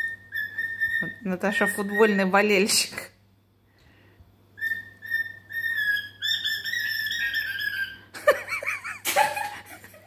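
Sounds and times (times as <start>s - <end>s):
cockatiel whistling: 0.0s - 2.3s, 4.6s - 8.0s.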